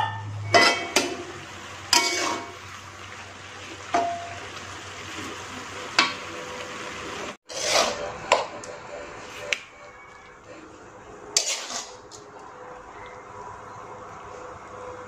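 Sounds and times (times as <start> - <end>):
metal spatula scraping a wok: 0.2 - 1.3, 1.9 - 2.6, 7.4 - 8.6, 11.3 - 12.1.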